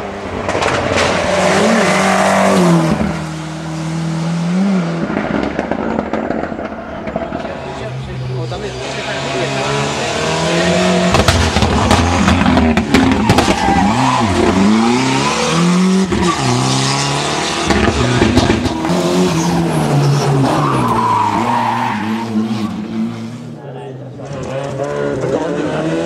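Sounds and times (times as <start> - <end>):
rally car engine at full throttle: 0.0 - 26.0
sharp cracks: 5.0 - 7.8.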